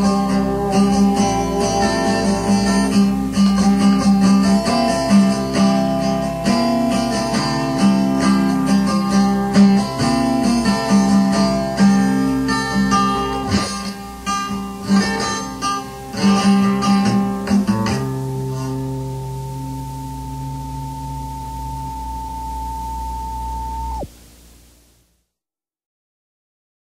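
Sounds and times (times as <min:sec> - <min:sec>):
acoustic guitar strummed and picked: 0:00.0 - 0:22.7
steady held tone: 0:00.0 - 0:24.8.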